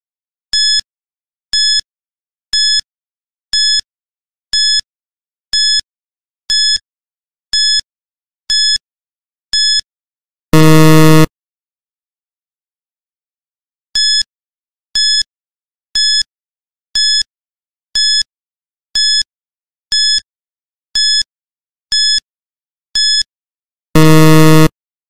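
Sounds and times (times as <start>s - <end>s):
loud low buzzer: 10.6s - 11.3s, 24.0s - 24.7s
short high beeps: 10.6s - 11.3s, 24.0s - 24.7s.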